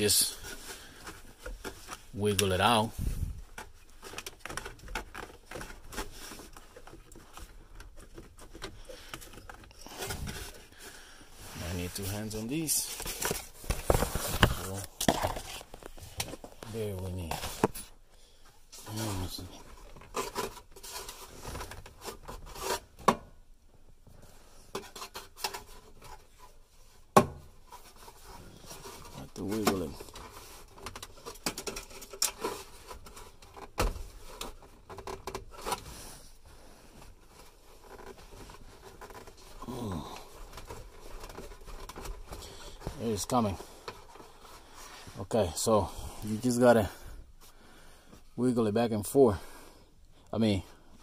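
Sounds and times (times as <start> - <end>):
rubbing and scraping on plastic: 0.0 - 18.0, 18.6 - 48.2.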